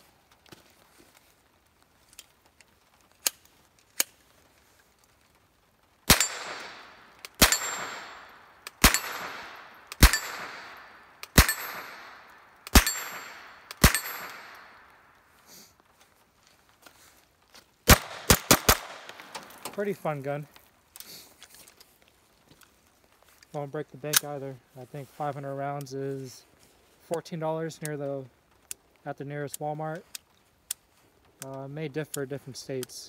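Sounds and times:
gunshots with echo: 0:06.1 - 0:14.8.

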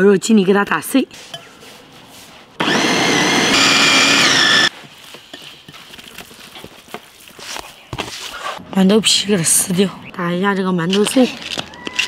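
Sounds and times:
food processor motor whine: 0:02.6 - 0:04.7.

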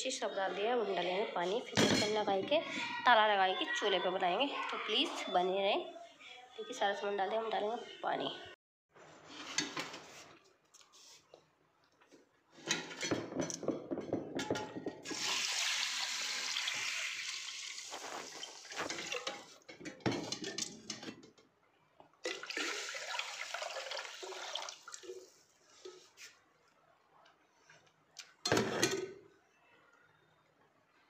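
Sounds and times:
water pouring into a pot: 0:15.0 - 0:19.6, 0:22.3 - 0:25.4
metal pots clinking: 0:18.7 - 0:21.4, 0:28.5 - 0:29.2.

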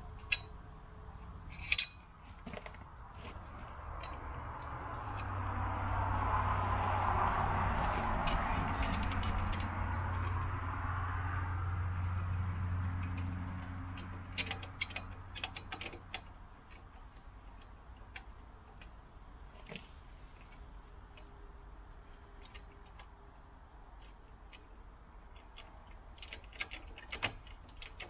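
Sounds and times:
low steady hum: 0:00.0 - 0:28.0
metallic clicks and clinks: 0:00.1 - 0:00.6, 0:01.5 - 0:02.8, 0:07.8 - 0:11.0, 0:12.0 - 0:19.0.

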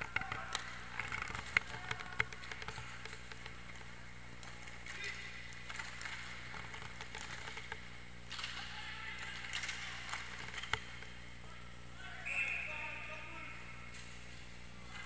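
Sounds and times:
clacks of sticks and puck: 0:00.0 - 0:11.1.

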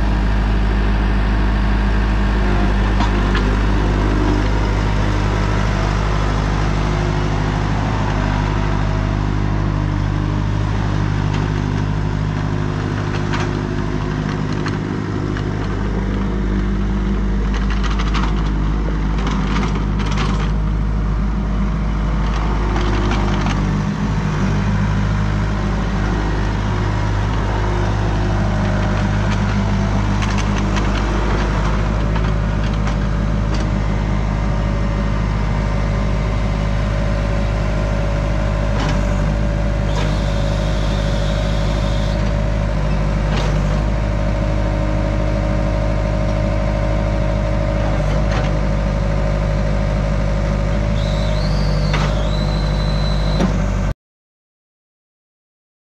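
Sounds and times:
diesel engine running: 0:00.0 - 0:53.9
thin high whine: 0:39.9 - 0:42.2.

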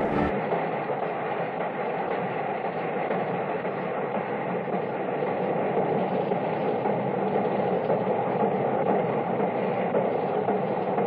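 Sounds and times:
steam locomotive running: 0:00.0 - 0:11.0.

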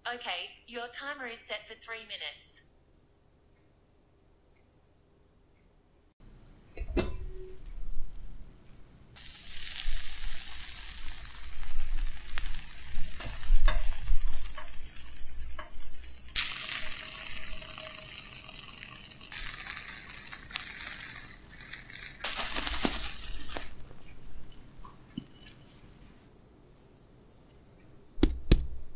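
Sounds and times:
butter sizzling in a frying pan: 0:09.2 - 0:23.9.

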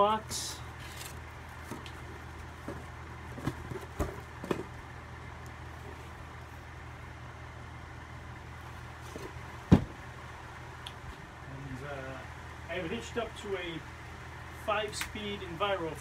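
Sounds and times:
fans humming: 0:00.0 - 0:16.0
box thumping down: 0:02.6 - 0:04.7, 0:09.1 - 0:10.0
light knocks on cardboard box: 0:09.7 - 0:10.0.

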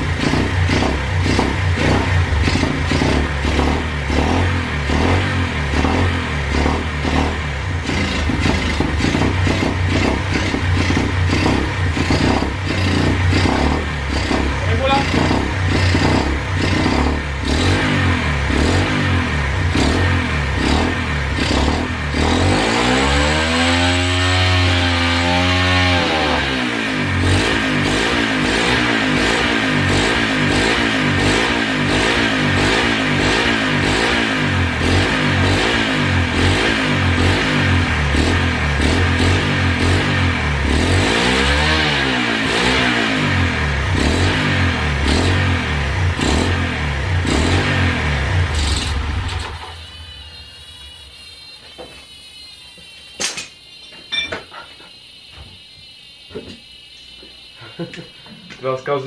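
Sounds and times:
pit bike engine revving: 0:00.0 - 0:51.2
faint turbo whistle: 0:49.5 - 0:57.8.

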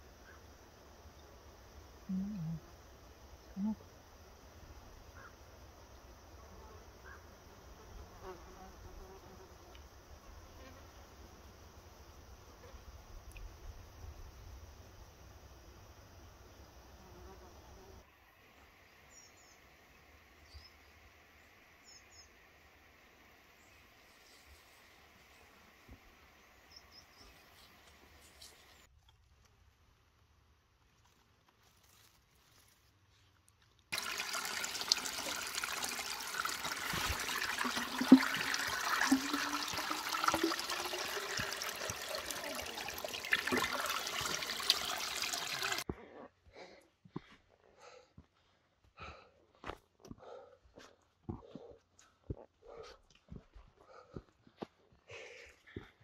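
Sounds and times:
water pouring into plastic bottle: 0:33.9 - 0:45.8
water splashing onto stones: 0:33.9 - 0:45.8
rising tone of filling bottle: 0:34.0 - 0:45.8.

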